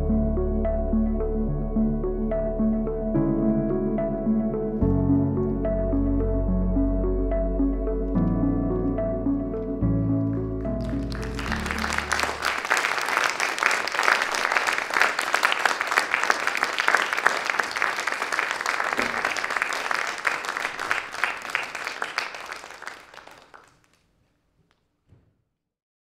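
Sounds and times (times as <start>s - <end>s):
music: 0.0s - 13.2s
audience applauding: 10.6s - 24.0s.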